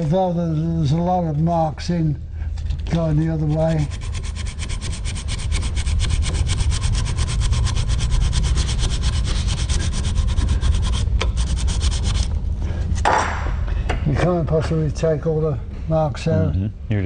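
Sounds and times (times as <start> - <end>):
emery cloth scratching on steel: 3.2 - 12.3.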